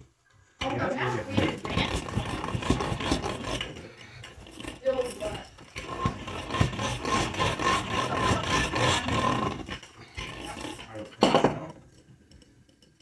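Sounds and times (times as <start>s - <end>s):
rolling pin rubbing over dough: 0.8s - 11.2s.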